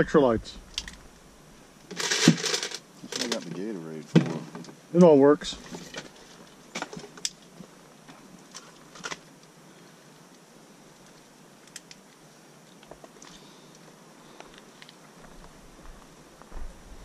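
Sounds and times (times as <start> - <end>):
low steady hiss: 0.0 - 17.0
clicks and knocks of handled gear: 1.9 - 3.7.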